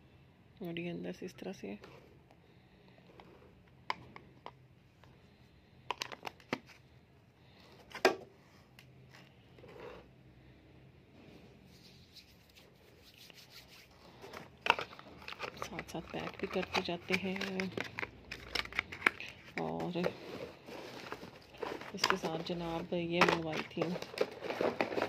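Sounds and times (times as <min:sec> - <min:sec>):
cardboard packaging rustling: 0:11.7 - 0:25.0.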